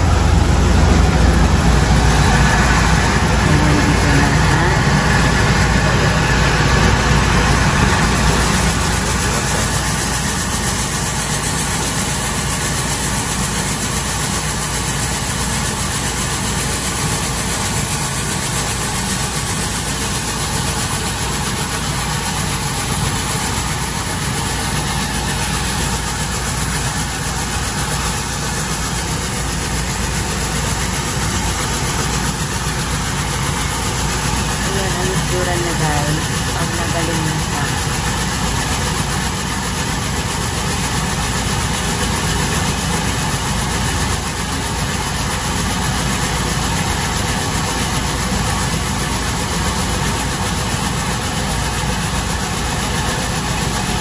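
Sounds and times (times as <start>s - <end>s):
machine motor drone: 0.0s - 54.0s
rice grains pouring down metal chute: 0.0s - 54.0s.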